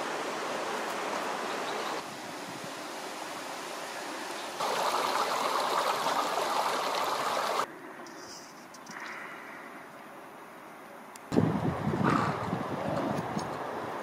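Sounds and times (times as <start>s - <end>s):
water rushing in channel: 0.0s - 7.7s
outdoor background: 0.0s - 14.0s.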